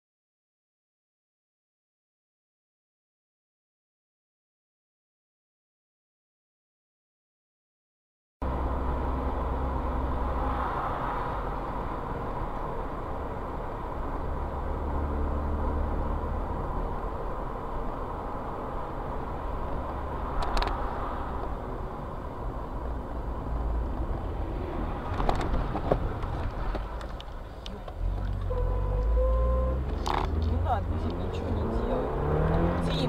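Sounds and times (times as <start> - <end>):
car engine and tyre rumble: 8.4 - 33.0.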